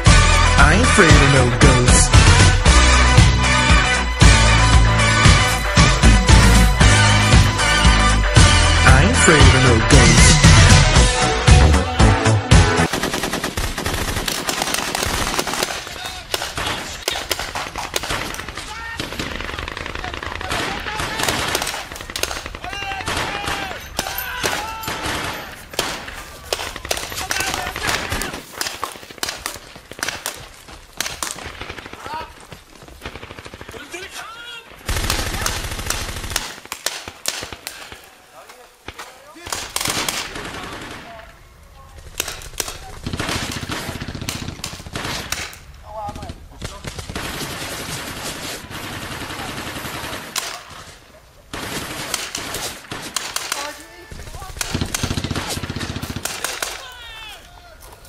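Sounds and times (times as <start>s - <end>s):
paintball guns firing: 12.8s - 41.4s, 42.0s - 58.0s.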